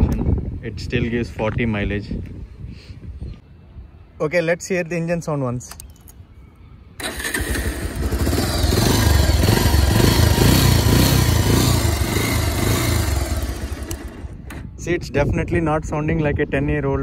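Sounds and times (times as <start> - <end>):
motorcycle engine running: 7.2 - 14.7.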